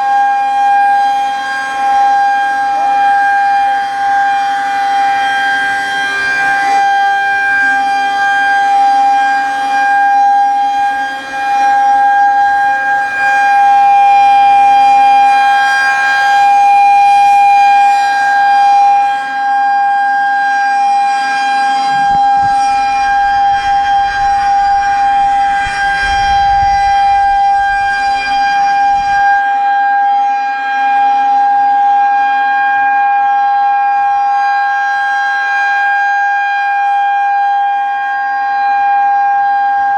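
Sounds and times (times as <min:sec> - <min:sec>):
warning siren steady tone: 0:00.0 - 0:39.9
wind rumble on microphone: 0:21.9 - 0:29.4.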